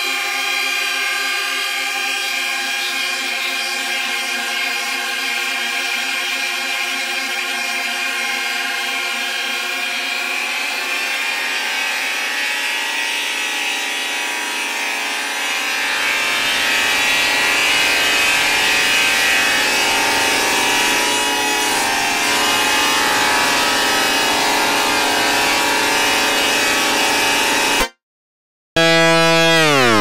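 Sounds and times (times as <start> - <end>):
noisy synthesizer chord and hiss: 28.8 - 30.0.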